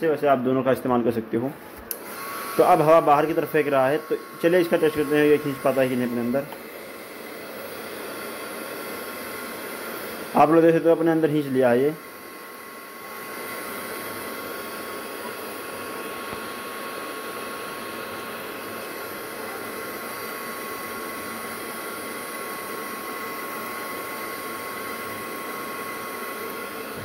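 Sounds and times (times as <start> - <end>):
vacuum cleaner motor whining: 0.9 - 27.0.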